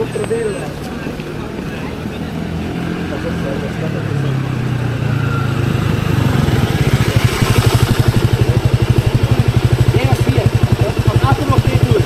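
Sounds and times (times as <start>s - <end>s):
small motorbike engine running: 2.5s - 12.0s.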